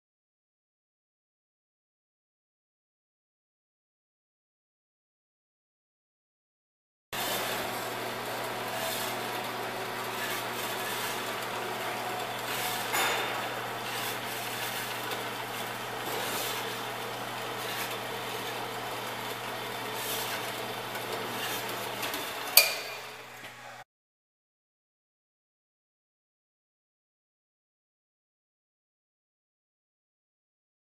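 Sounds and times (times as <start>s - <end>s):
band saw motor hum: 7.2s - 22.6s.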